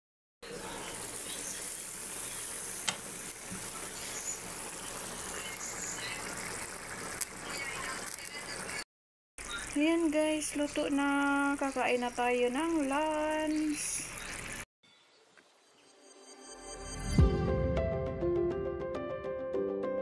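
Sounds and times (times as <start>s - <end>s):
stew bubbling in frying pan: 0.5s - 8.8s.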